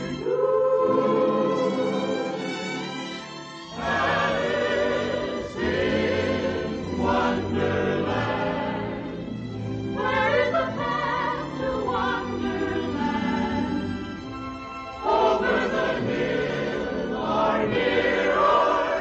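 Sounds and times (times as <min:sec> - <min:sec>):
choir singing: 0:00.0 - 0:19.0.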